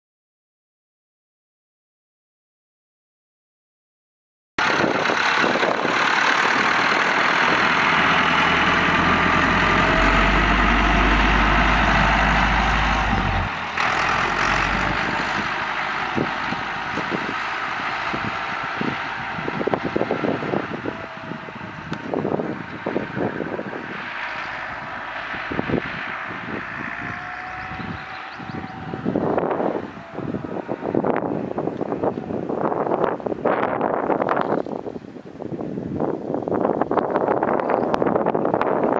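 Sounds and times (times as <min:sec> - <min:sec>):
tractor diesel engine passing: 0:04.6 - 0:34.4
wind buffeting microphone: 0:04.6 - 0:38.9.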